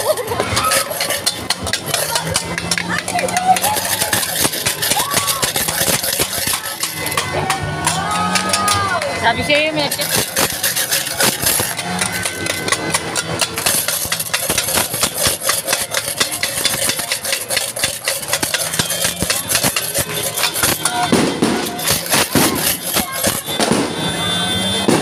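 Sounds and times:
firecrackers popping: 0.0s - 25.0s.

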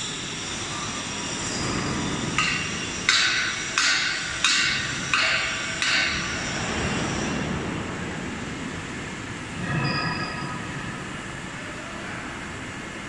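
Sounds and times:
workshop machinery rumble: 0.0s - 13.0s
hammer strikes ringing: 2.4s - 6.3s.

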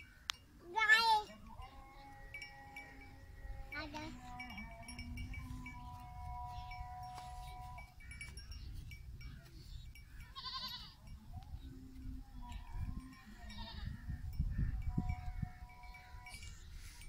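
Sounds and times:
goat bleating: 10.2s - 11.0s, 13.4s - 14.0s.

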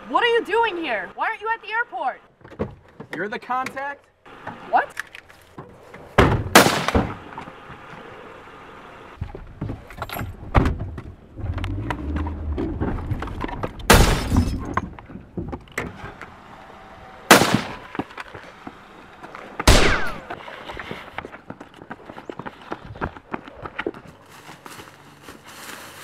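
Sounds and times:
loud sharp bangs: 6.2s - 7.2s, 13.9s - 14.6s, 17.3s - 18.0s, 19.6s - 20.3s
low rumble: 10.3s - 14.7s.

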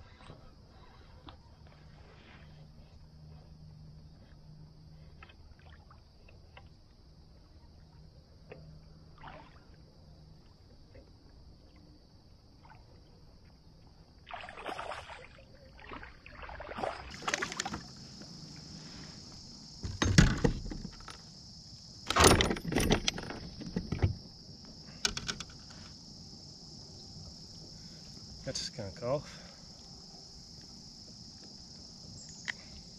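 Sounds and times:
insects droning: 0.0s - 32.9s
knocks and rattles on kayak hull: 19.8s - 21.3s, 22.1s - 24.4s.

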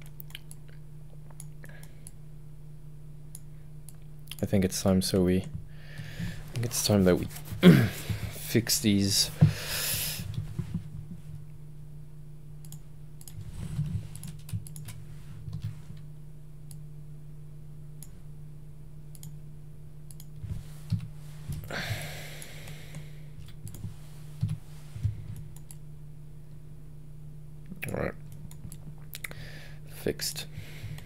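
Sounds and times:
low electrical hum: 0.0s - 31.0s.

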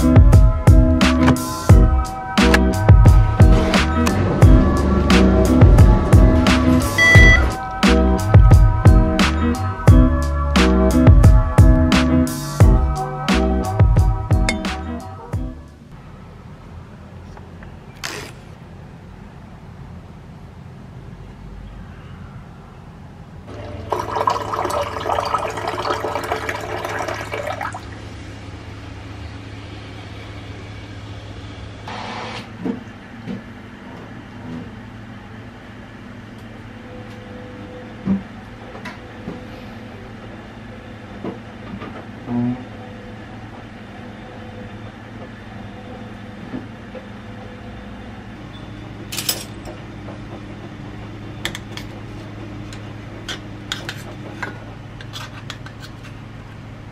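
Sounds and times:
hot water pouring into mug: 23.5s - 27.9s.

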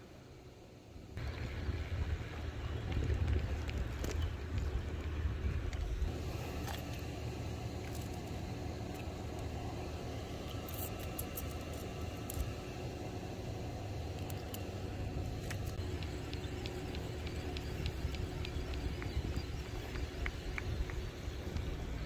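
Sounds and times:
wind on microphone: 1.2s - 6.2s.

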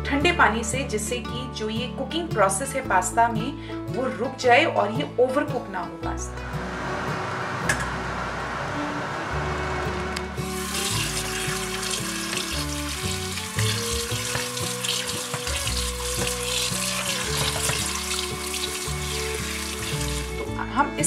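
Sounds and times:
tap water running into colander: 10.4s - 20.5s.

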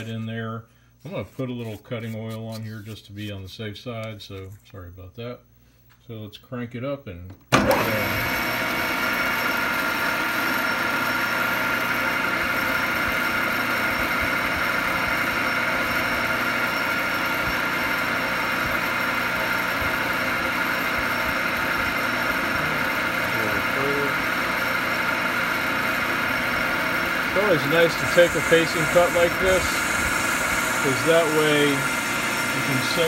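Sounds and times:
lathe whining: 7.6s - 33.0s.

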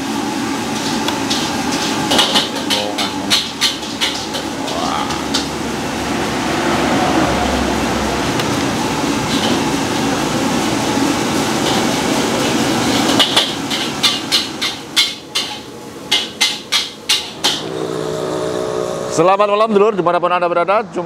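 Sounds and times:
gas burner roaring: 0.0s - 20.9s
metal spatula striking wok: 1.2s - 5.5s, 13.0s - 18.2s.

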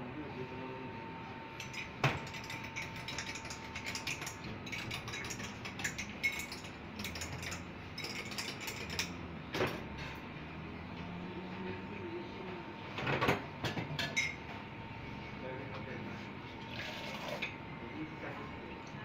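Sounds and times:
spoon clinking against glass mugs: 1.6s - 9.2s, 14.0s - 14.4s.

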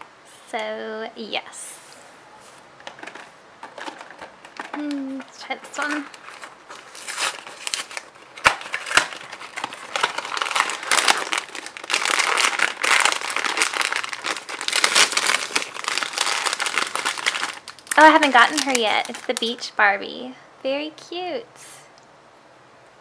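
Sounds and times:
foil bag crinkling: 2.9s - 19.8s.

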